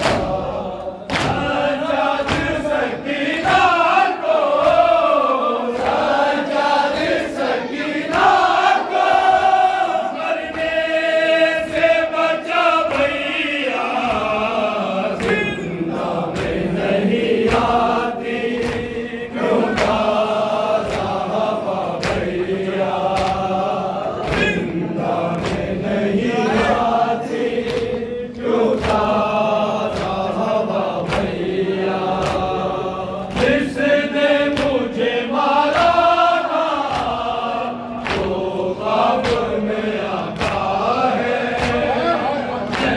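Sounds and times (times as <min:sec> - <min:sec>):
men chanting in unison: 0:00.0 - 0:42.9.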